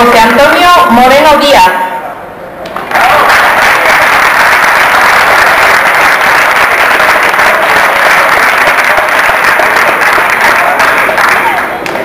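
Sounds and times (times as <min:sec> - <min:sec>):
crowd applauding: 0:02.6 - 0:12.0.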